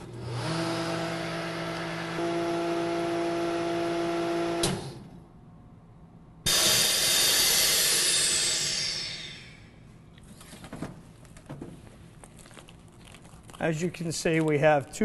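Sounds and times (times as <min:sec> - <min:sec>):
vacuum pump humming: 0:00.0 - 0:05.0
air hissing into chamber: 0:06.5 - 0:09.8.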